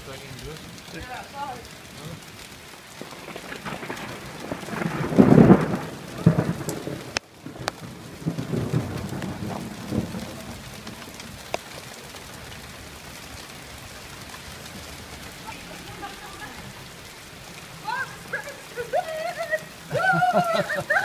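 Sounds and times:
rain hissing and pattering: 0.0s - 21.0s
thunder rumbling: 0.0s - 21.0s
sharp drip ticks: 6.6s - 21.0s.

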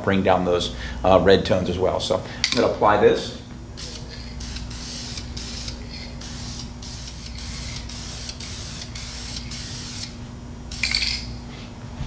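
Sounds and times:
aerosol can spraying: 3.8s - 11.1s.

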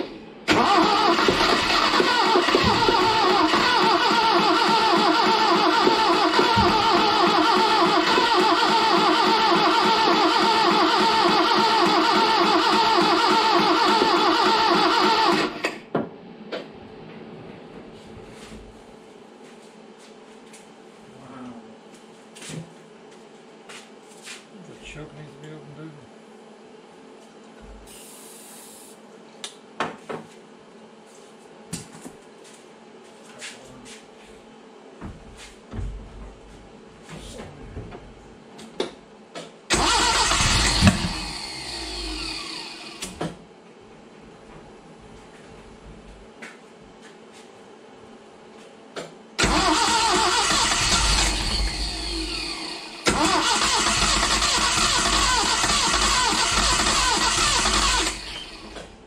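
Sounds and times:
car engine cranking on starter: 0.5s - 15.8s, 39.7s - 43.2s, 49.4s - 58.9s.

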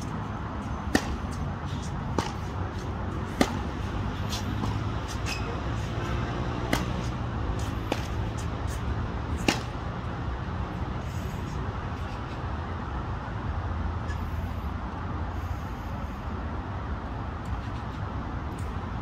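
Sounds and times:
low rumble of background noise: 0.0s - 19.0s
tennis ball hits: 0.9s - 1.4s, 2.1s - 5.9s, 6.6s - 8.5s, 9.3s - 9.8s.

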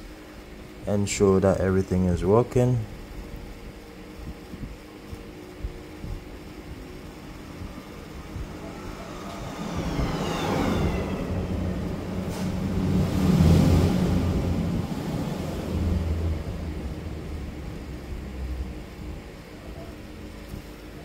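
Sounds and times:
passing vehicle engine: 6.4s - 19.5s.

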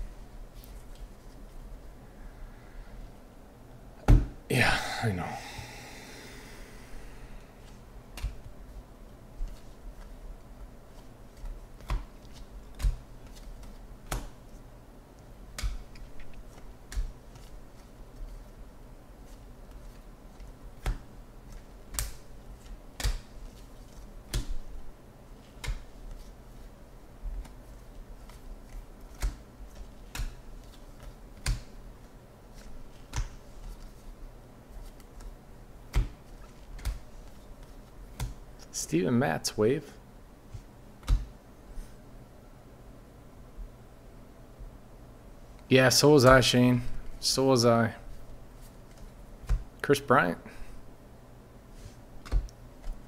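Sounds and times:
cards flicked with sharp snaps: 11.4s - 14.4s, 23.0s - 23.3s, 25.6s - 25.9s, 40.5s - 41.3s.

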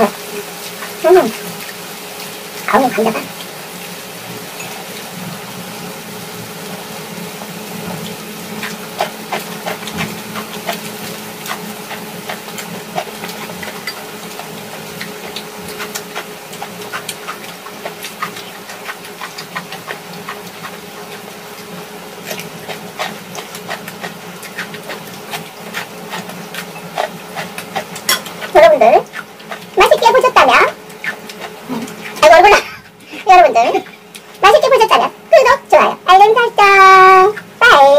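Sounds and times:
food sizzling on grill pan: 0.0s - 32.7s
close-up chewing: 7.3s - 33.2s.

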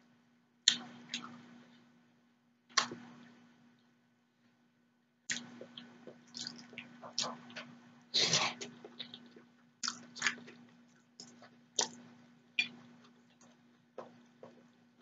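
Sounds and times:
chewing noodles: 5.3s - 7.7s, 8.3s - 14.7s.

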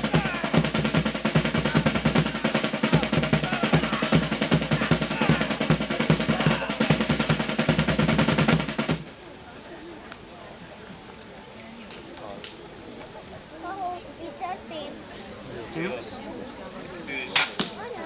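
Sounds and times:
fast dense drumming: 0.0s - 9.1s.

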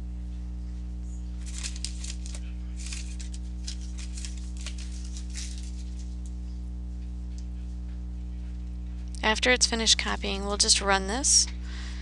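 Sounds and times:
low electrical hum: 0.0s - 12.0s
faint crackles: 1.4s - 6.4s.

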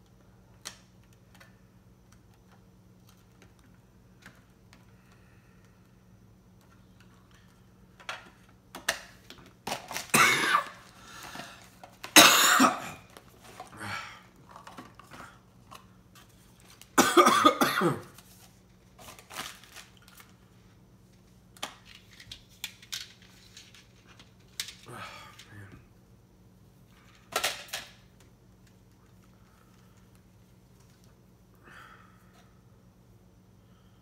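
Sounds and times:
man coughing: 10.1s - 10.8s, 12.2s - 13.0s, 17.0s - 18.1s.

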